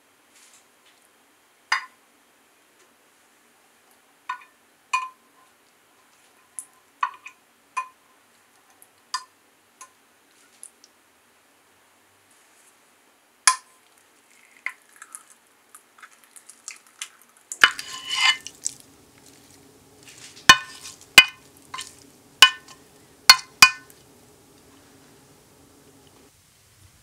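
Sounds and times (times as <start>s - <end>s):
utensil scraping jelly: 14.3s - 25.3s
utensil knocking against glass: 20.4s - 23.9s.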